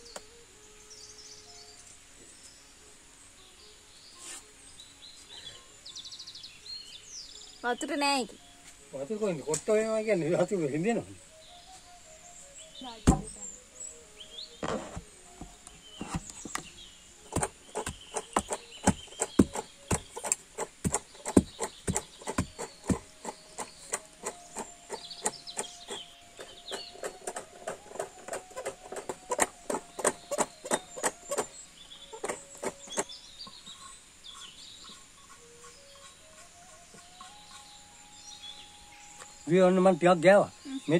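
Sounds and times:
wooden pestle pounding in mortar: 17.3s - 25.0s.

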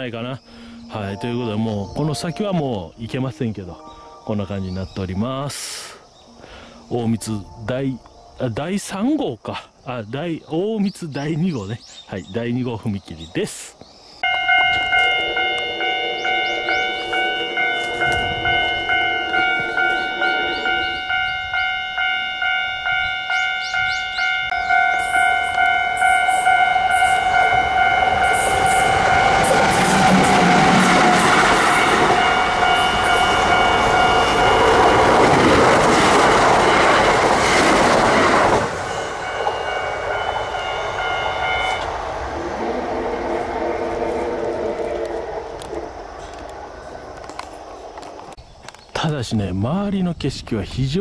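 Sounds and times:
electric train passing: 0.0s - 8.6s, 14.2s - 48.4s
level crossing bell dinging: 14.2s - 30.7s, 38.8s - 41.9s.

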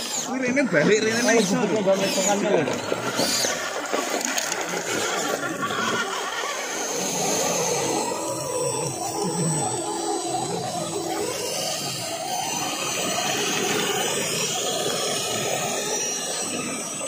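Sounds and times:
small electric motors whining: 0.0s - 17.0s.

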